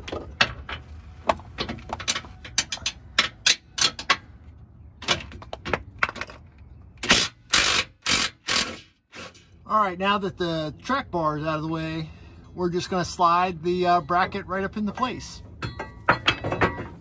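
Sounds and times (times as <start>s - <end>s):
metal clanks: 0.0s - 4.3s, 14.0s - 17.0s.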